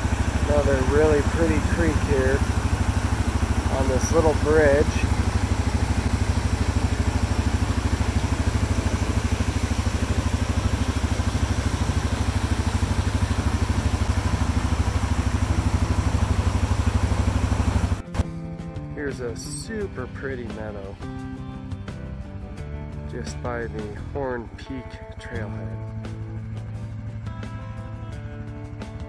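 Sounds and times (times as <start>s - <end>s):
creek cascading over rocks: 0.0s - 18.0s
atv engine idling: 0.0s - 18.2s, 23.1s - 29.0s.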